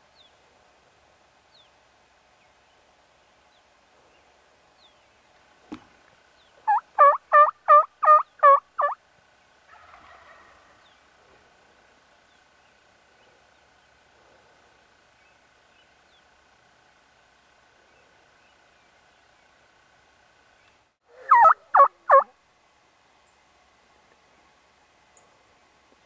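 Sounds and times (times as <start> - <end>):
turkey call hen yelps: 6.6 - 9.0, 9.7 - 10.7, 21.1 - 22.3.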